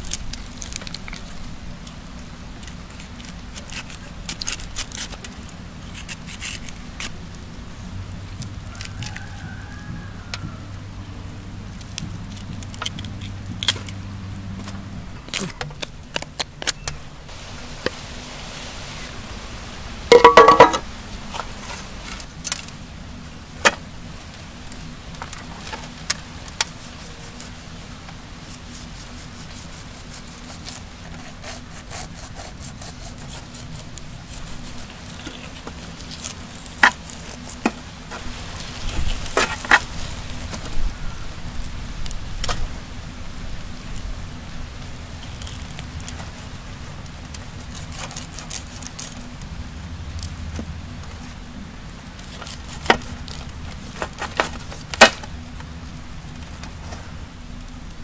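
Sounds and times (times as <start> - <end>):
steady low hum: 10.1 - 58.0
knife knocking and scraping fish: 20.1 - 20.8.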